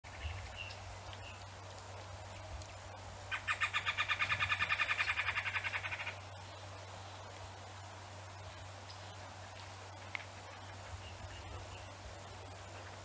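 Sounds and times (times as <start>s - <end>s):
bird rattling call: 3.3s - 6.2s.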